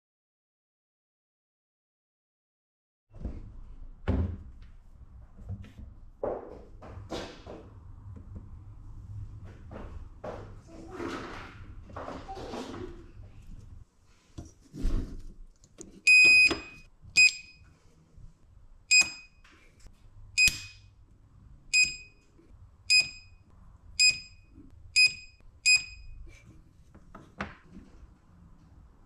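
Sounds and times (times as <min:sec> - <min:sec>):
short electronic beeps: 0:16.1 - 0:17.6, 0:20.4 - 0:20.8, 0:21.8 - 0:22.2, 0:24.0 - 0:26.2.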